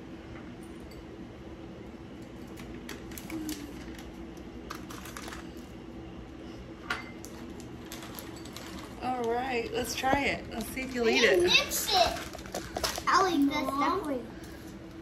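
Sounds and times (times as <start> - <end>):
plastic packet rustling: 2.6 - 5.8, 7.2 - 13.4.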